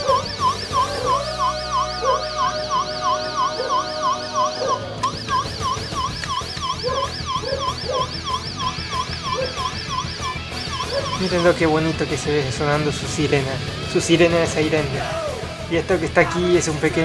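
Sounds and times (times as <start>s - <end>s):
toy siren warbling: 0.0s - 12.0s
steady electronic tone: 0.0s - 12.1s.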